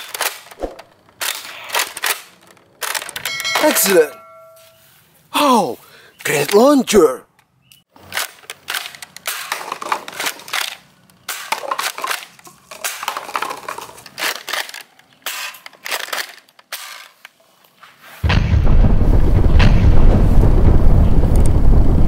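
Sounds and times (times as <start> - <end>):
paper cups clattering when hit: 8.3 - 17.2.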